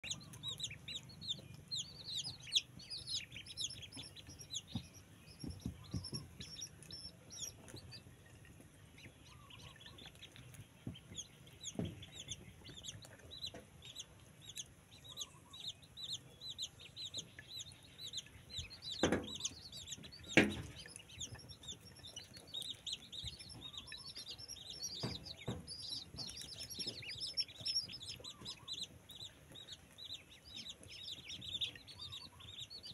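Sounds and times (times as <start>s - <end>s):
ducklings peeping: 0.0s - 32.9s
sharp knocks: 4.0s - 6.6s, 19.0s - 19.5s, 20.2s - 20.8s.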